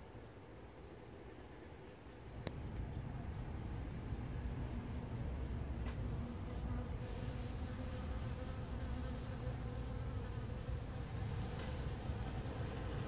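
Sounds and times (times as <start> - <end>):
bees buzzing: 2.6 - 13.0.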